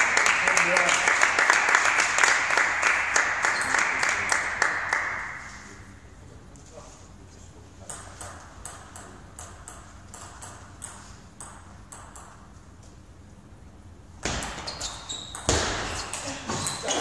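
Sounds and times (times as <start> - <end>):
table tennis ball bouncing: 7.8 - 12.6, 14.2 - 17.0
table tennis rally hits: 14.2 - 17.0.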